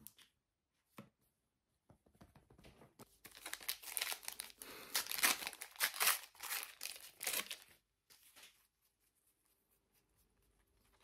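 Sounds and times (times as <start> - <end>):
wrapper tearing and crinkling: 3.2 - 7.8.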